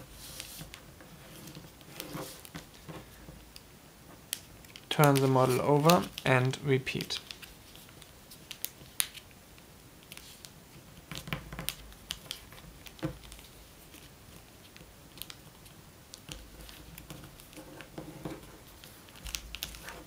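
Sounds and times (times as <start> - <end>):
paper folding and creasing: 11.1 - 20.0.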